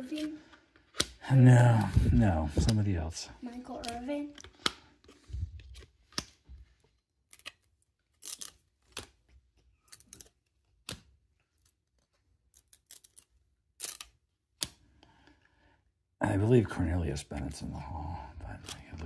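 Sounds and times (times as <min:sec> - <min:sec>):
trading cards sliding and flicking: 0:00.1 - 0:02.8, 0:03.8 - 0:06.5.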